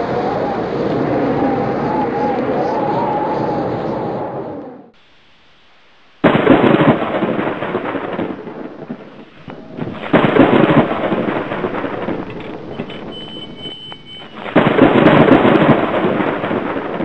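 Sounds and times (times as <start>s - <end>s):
thunderclaps: 6.2s - 17.0s.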